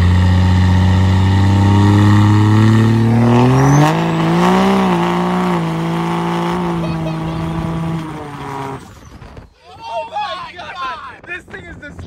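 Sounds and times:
diesel engine accelerating: 0:00.0 - 0:09.5.

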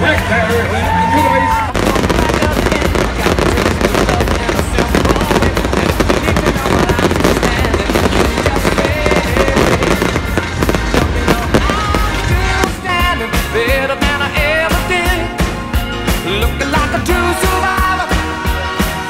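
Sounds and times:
loud music: 0:00.0 - 0:19.0
fireworks crackling and popping: 0:01.7 - 0:14.9.

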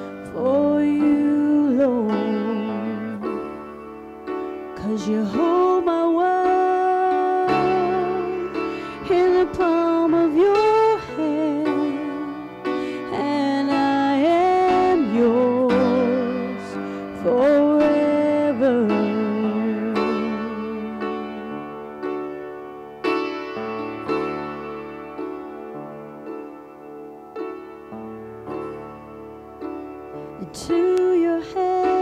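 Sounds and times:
instrumental accompaniment: 0:00.0 - 0:32.0.

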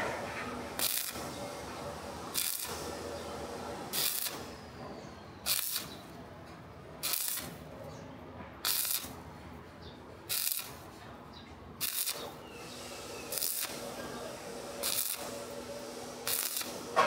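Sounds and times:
welding arc crackling and hissing: 0:00.0 - 0:04.8, 0:05.4 - 0:06.2, 0:07.0 - 0:07.7, 0:08.6 - 0:09.2, 0:10.3 - 0:10.8, 0:11.8 - 0:17.0.

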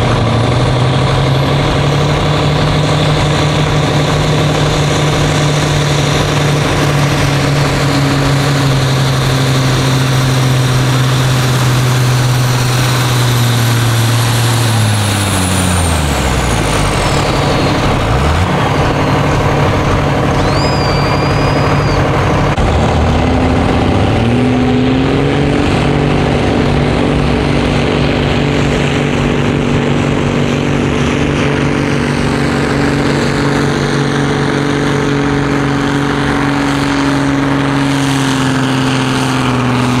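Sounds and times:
high whine: 0:00.0 - 0:40.0
tractor diesel engine at full throttle: 0:00.0 - 0:40.0
tractor engine revving: 0:00.0 - 0:40.0.

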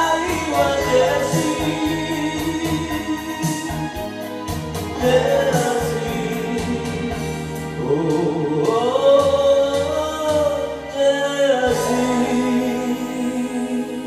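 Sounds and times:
karaoke backing track: 0:00.0 - 0:14.0
man singing: 0:00.0 - 0:14.0.

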